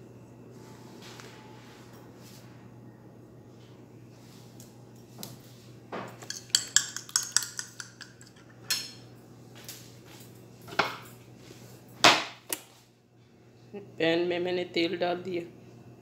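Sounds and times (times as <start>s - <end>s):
metal utensil clinking against bowl: 6.2s - 9.0s.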